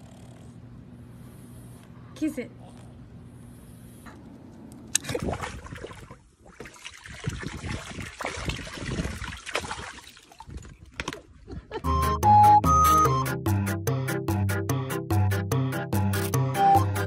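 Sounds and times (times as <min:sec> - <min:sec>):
hose water splashing into pool: 0:05.0 - 0:11.0
dog thrashing in water: 0:05.0 - 0:11.3.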